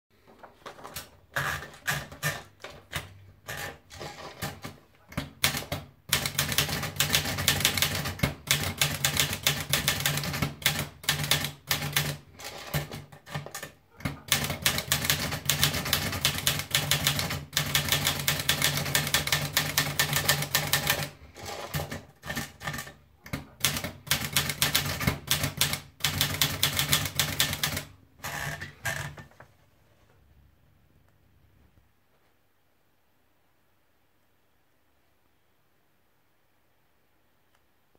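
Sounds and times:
paper feed clicks: 0:00.2 - 0:29.2
typewriter keystrokes: 0:00.7 - 0:28.0.

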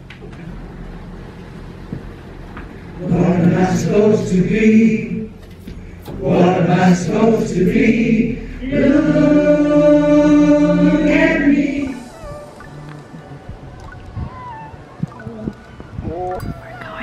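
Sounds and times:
choir singing: 0:03.0 - 0:05.4, 0:06.1 - 0:13.2.

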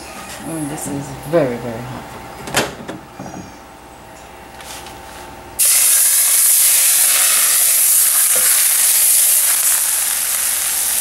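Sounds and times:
hot oil sizzling hiss: 0:05.6 - 0:11.0.

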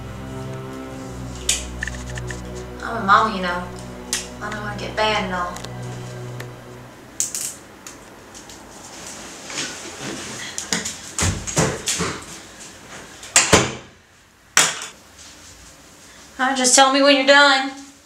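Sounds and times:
footsteps and shuffling: 0:08.3 - 0:13.2.

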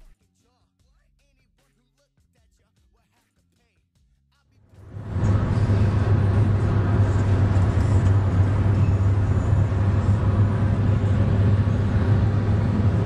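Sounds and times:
car cabin road and engine noise: 0:04.8 - 0:13.0.

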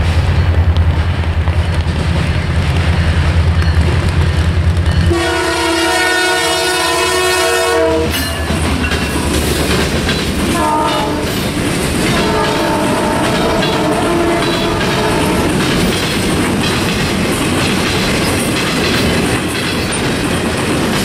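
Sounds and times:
diesel locomotive rumbling: 0:00.0 - 0:21.0
train air horn: 0:05.1 - 0:08.3, 0:10.5 - 0:11.4, 0:12.0 - 0:15.6
wheels clicking over rails: 0:08.3 - 0:10.6, 0:11.2 - 0:21.0.

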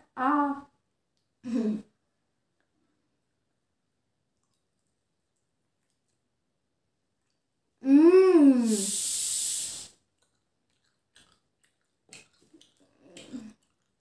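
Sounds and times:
chewing sounds: 0:04.3 - 0:06.3, 0:09.9 - 0:14.0
woman humming mmm: 0:07.8 - 0:09.9
hissing breath: 0:08.6 - 0:10.0.

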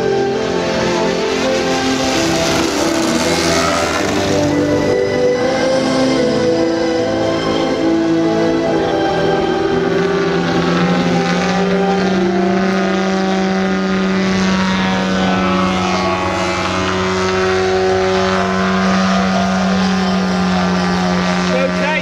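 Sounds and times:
model aircraft engine and propeller: 0:00.0 - 0:22.0.

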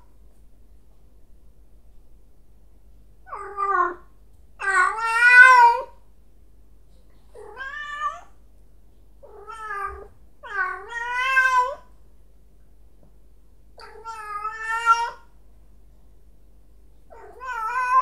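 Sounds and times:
cat meowing loudly: 0:04.6 - 0:05.9, 0:07.4 - 0:08.3, 0:09.2 - 0:11.9, 0:13.8 - 0:15.3, 0:17.1 - 0:18.0.

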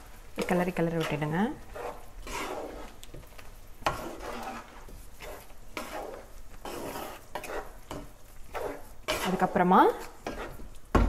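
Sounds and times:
spatula scraping a frying pan: 0:00.0 - 0:10.9.

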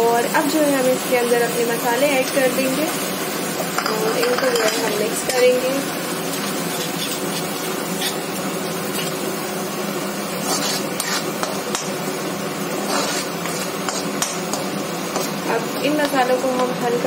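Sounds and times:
food sizzling: 0:00.0 - 0:17.0
spatula scraping a pan: 0:06.2 - 0:09.2, 0:10.3 - 0:11.9, 0:12.7 - 0:16.2.

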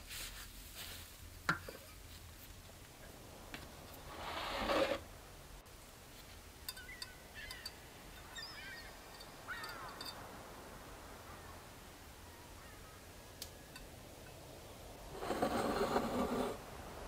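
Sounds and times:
scraping rustle: 0:00.0 - 0:02.7, 0:03.9 - 0:05.1, 0:15.1 - 0:16.6
faint bird chirping calls: 0:06.5 - 0:14.9.

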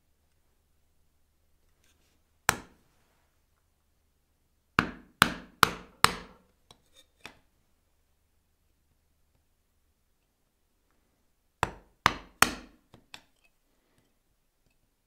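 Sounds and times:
chisel struck chopping wood: 0:02.5 - 0:02.7, 0:04.8 - 0:06.4, 0:11.6 - 0:12.8.

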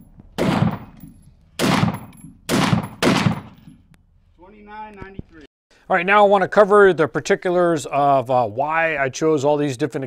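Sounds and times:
rifle shots echoing: 0:00.0 - 0:03.9.

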